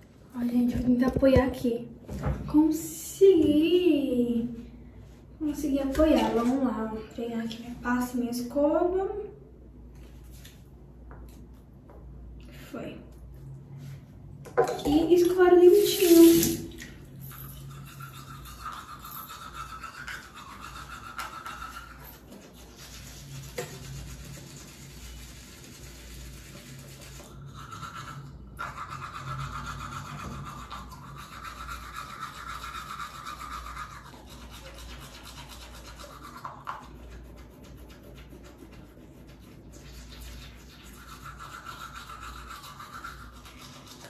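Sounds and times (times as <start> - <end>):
toothbrush scrubbing teeth: 14.7 - 44.0.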